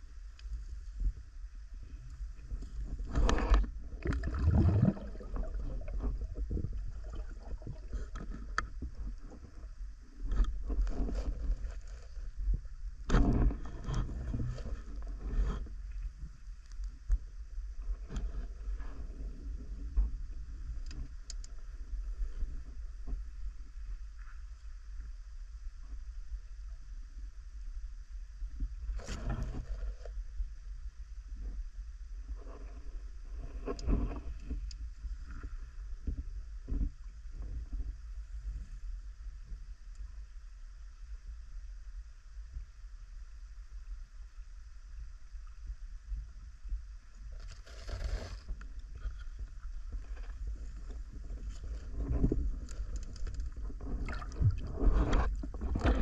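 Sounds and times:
underwater rumble: 0.0s - 56.0s
water swishing: 2.8s - 9.6s.

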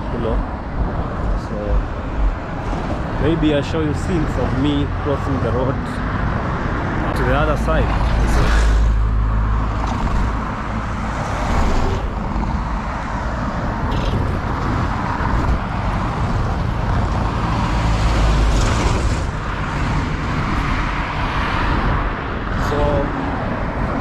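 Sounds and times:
vehicles passing on a road: 0.0s - 24.0s.

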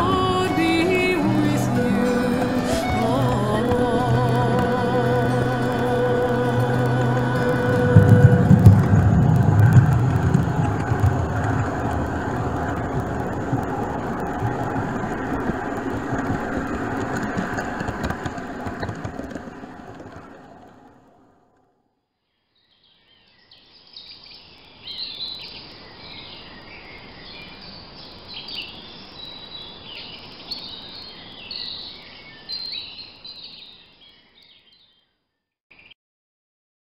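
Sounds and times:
birds chirping: 0.0s - 20.0s
model train running on track: 0.0s - 20.9s.

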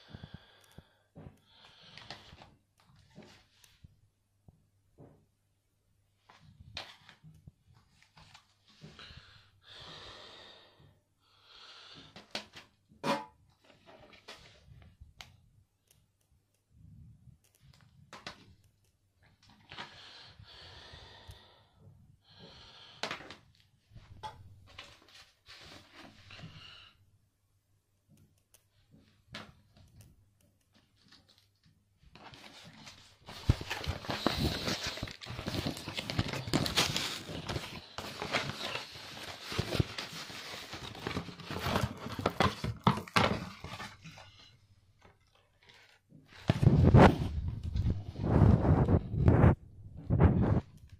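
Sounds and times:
packaging clicks and rustles: 30.8s - 44.3s
plastic wrapping hissing: 33.3s - 41.5s.

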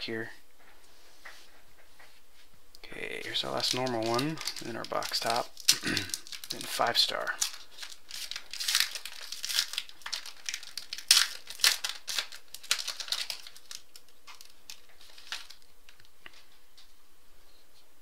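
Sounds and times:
foil wrapper crinkling and tearing: 3.1s - 16.1s.

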